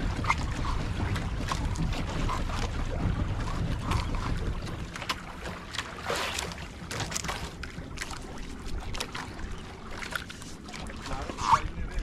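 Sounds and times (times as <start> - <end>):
boat engine rumble: 0.0 - 12.0.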